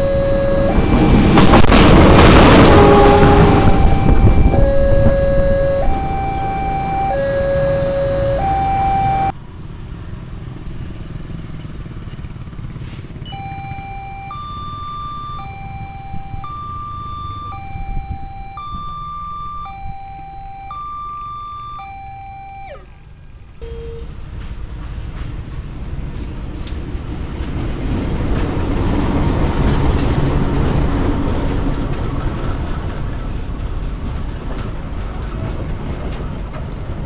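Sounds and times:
two-tone level-crossing alarm: 0.0s - 9.3s, 13.3s - 24.1s
diesel train rumble: 0.0s - 9.6s, 10.4s - 37.0s
traffic noise: 0.0s - 37.0s.

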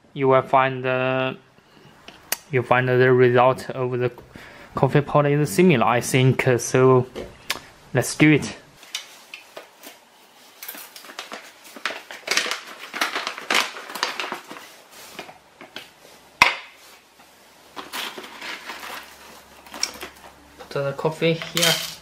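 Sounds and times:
bag crinkling and rustling: 8.8s - 16.0s, 17.7s - 20.4s.

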